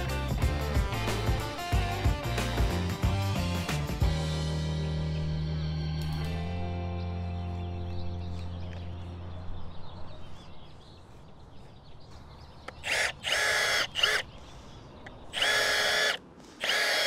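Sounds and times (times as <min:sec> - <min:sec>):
background music: 0:00.0 - 0:09.4
cordless drill whining: 0:12.8 - 0:14.2, 0:15.4 - 0:17.0.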